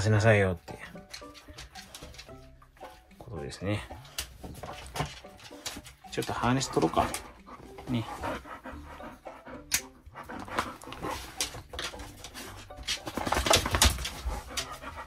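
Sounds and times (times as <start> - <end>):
dog panting: 3.8 - 15.0.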